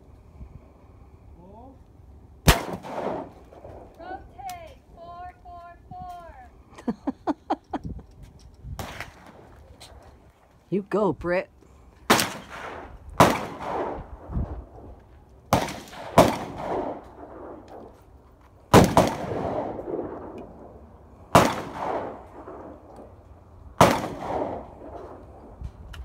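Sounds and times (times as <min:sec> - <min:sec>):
shotgun shots echoing: 0:02.4 - 0:03.4, 0:12.1 - 0:14.2, 0:15.5 - 0:17.9, 0:18.7 - 0:22.8, 0:23.8 - 0:25.2.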